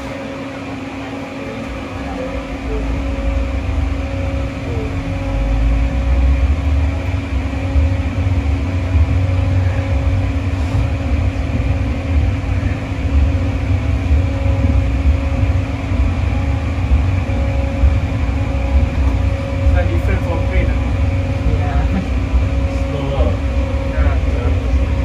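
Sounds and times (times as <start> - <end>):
constant hum: 0.0 - 25.0
locomotive low rumble: 0.0 - 25.0.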